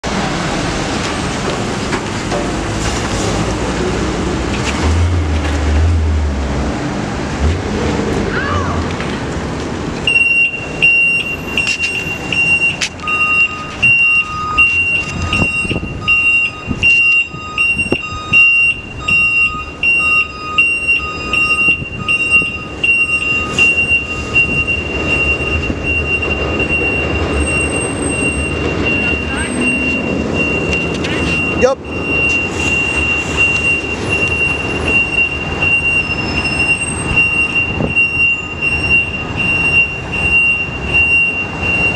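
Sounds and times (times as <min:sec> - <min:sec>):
street traffic: 0:00.0 - 0:41.9
truck engine running: 0:00.0 - 0:41.9
high backup alarm beeping: 0:10.0 - 0:41.9
lower backup alarm beeping: 0:10.0 - 0:41.9.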